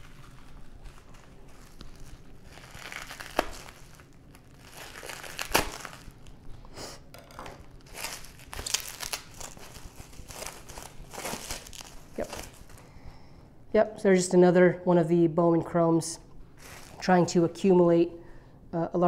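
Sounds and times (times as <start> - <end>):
bubble wrap snapping: 0.0 - 6.4, 7.2 - 12.8, 16.6 - 17.1
bubble wrap crinkling: 0.0 - 6.6, 7.2 - 12.9, 16.6 - 17.4.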